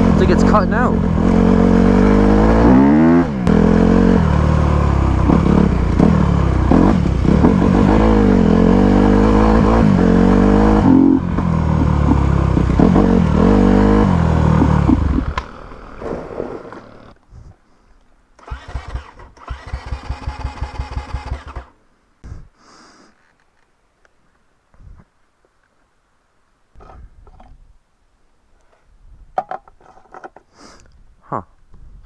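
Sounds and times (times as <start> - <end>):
dirt bike engine revving unevenly: 0.0 - 17.2, 18.4 - 21.7.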